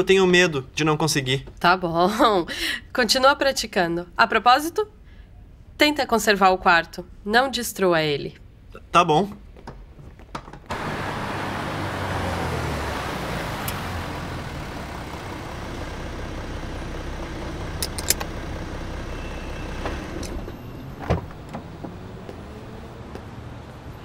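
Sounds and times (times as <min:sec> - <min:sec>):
street traffic: 0:10.6 - 0:24.0
low engine hum: 0:10.7 - 0:24.0.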